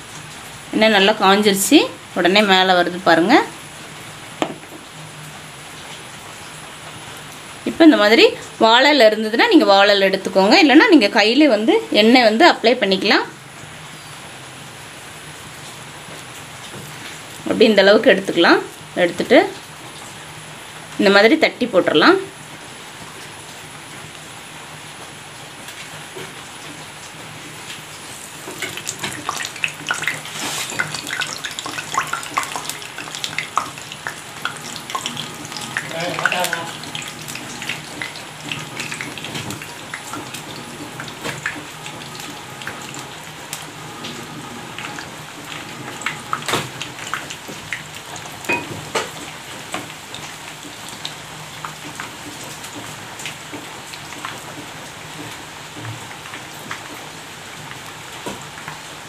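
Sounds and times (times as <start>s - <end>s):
food frying in hot oil: 0.0s - 59.0s
oil popping: 28.0s - 50.2s.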